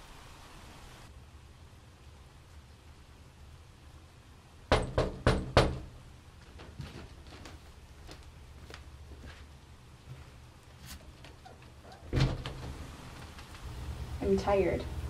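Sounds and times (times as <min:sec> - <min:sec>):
knocking on glass door: 0:04.7 - 0:06.0.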